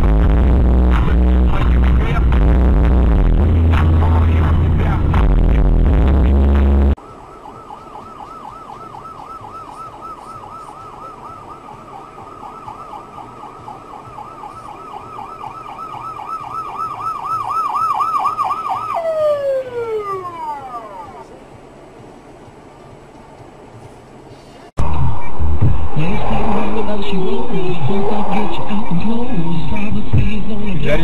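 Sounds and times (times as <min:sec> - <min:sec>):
emergency siren warbling: 0:06.7 - 0:21.3, 0:24.8 - 0:30.1.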